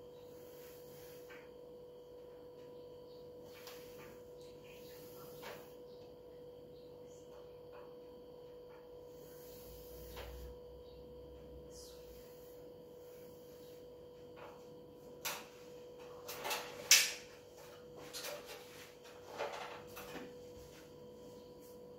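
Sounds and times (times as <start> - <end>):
faint electrical hum: 0.0 - 21.9.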